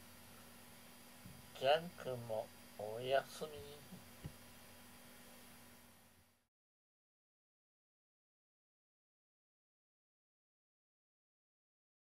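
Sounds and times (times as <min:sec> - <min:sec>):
faint steady hum: 0:00.0 - 0:06.5.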